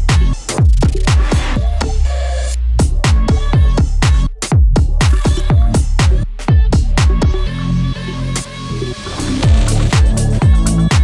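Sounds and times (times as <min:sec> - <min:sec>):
electronic dance music: 0:00.0 - 0:07.6, 0:08.2 - 0:11.0.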